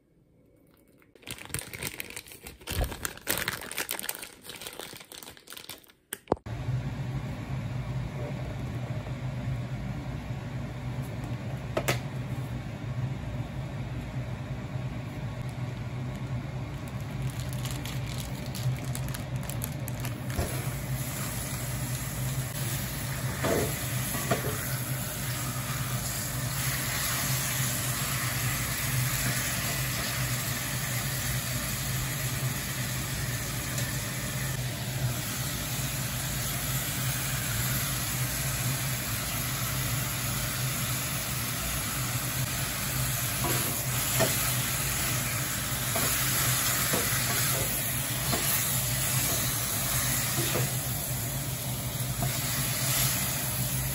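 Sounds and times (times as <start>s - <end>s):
meat sizzling in a pot: 20.2s - 53.9s.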